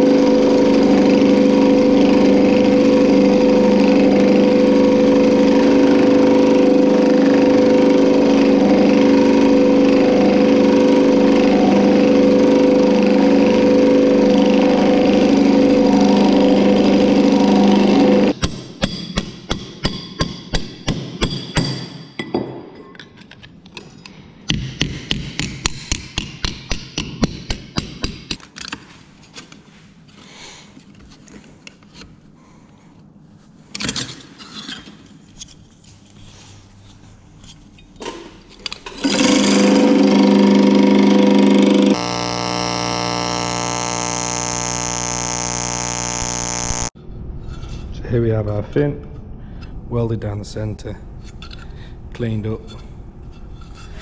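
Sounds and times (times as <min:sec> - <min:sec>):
welder buzzing: 0:00.0 - 0:18.4, 0:39.0 - 0:47.0
loud steady hum: 0:00.0 - 0:21.9, 0:39.0 - 0:47.0
hammer striking sheet metal: 0:18.4 - 0:22.2.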